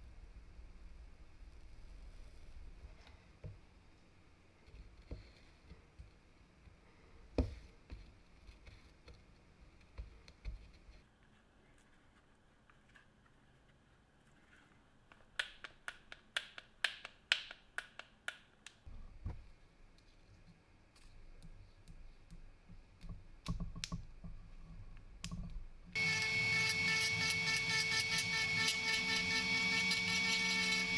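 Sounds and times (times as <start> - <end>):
rotary tool motor whine: 26.0 - 30.9.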